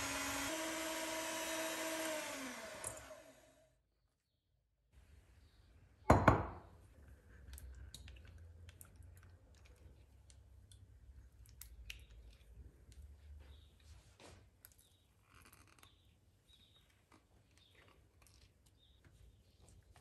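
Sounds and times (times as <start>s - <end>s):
glass knocking on glass: 6.1s - 6.6s.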